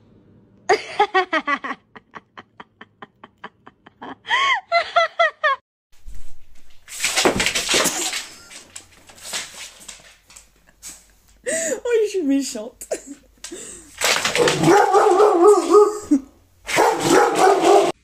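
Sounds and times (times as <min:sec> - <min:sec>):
person giggling: 0:00.7 - 0:05.6, 0:15.7 - 0:16.4.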